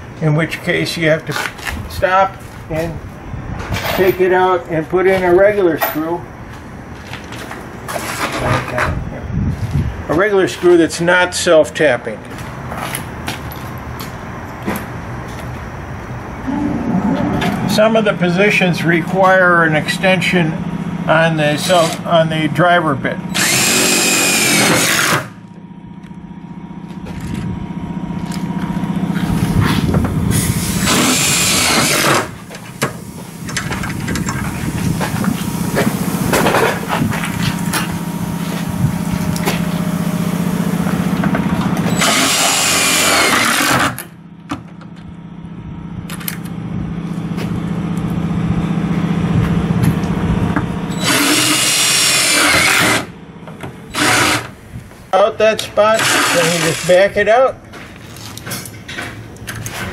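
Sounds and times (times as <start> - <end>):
cordless drill driving screws: 23.3 - 25.3, 30.8 - 32.3, 41.9 - 44.0, 50.9 - 53.1, 53.9 - 54.5, 55.9 - 56.9.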